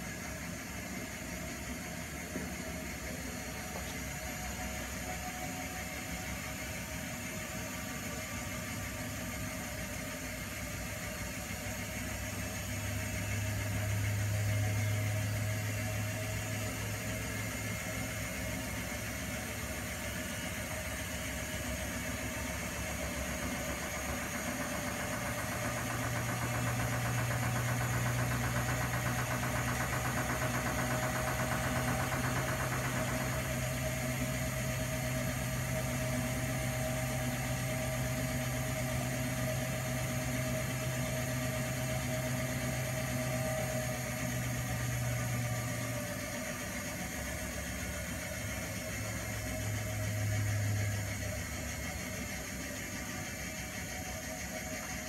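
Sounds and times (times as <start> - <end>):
washing machine motor hum: 0.0 - 55.0.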